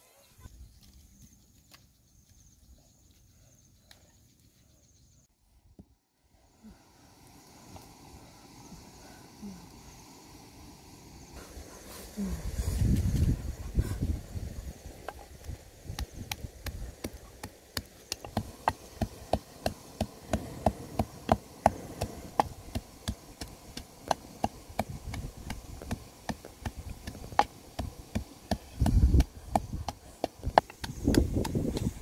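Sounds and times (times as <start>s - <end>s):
pestle pounding in mortar: 16.2s - 32.0s.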